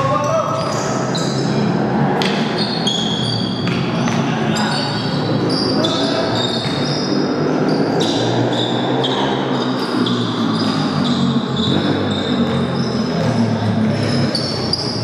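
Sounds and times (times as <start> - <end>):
short high squeaks: 4.5 - 13.4.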